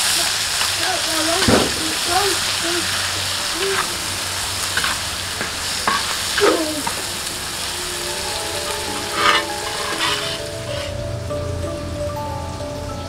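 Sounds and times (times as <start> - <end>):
paste sizzling in hot oil: 0.0 - 11.2
metal spatula scraping a wok: 4.7 - 7.7, 8.8 - 11.0
soft music with plucked notes: 6.4 - 13.0.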